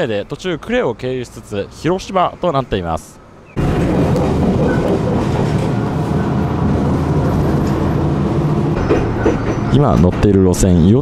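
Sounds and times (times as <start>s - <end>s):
train wheels rumbling on rail: 3.5s - 11.0s.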